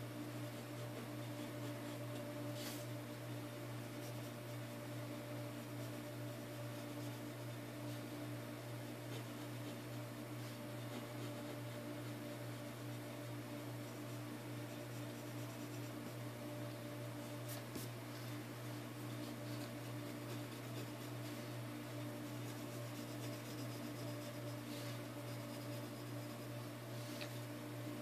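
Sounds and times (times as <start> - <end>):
steady low hum: 0.0 - 28.0
pencil scratching on paper: 0.5 - 2.8, 3.8 - 4.8, 5.4 - 16.3, 19.0 - 26.7.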